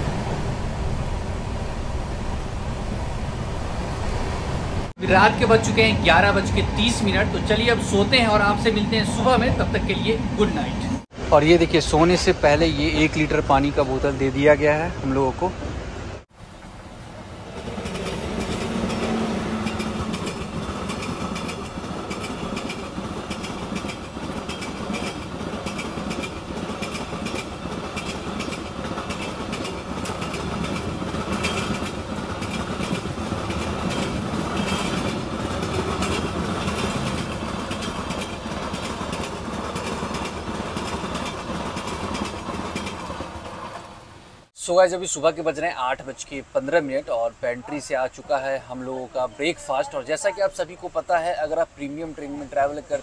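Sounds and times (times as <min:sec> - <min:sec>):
train wheels clattering on rails: 0:16.5 - 0:44.5.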